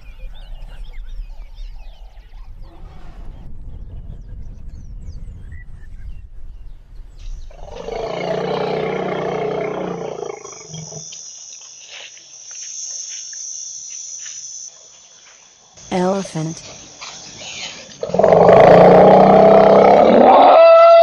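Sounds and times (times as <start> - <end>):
low rumbling noise: 0.0 - 9.8
elephant roaring: 7.6 - 11.0, 18.0 - 21.0
high insect buzz: 7.6 - 21.0.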